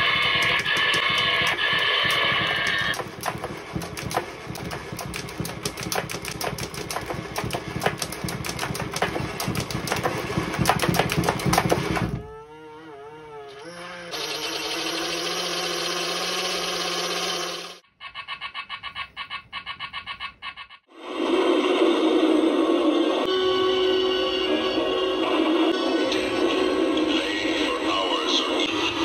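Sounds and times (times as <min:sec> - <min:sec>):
toy motor rattling and clicking: 0:00.0 - 0:12.0.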